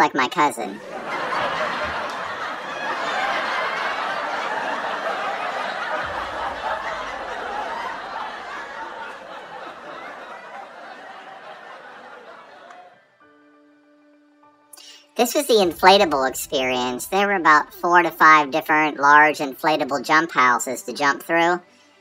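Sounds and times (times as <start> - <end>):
crowd talking and laughing: 0.1 - 13.1.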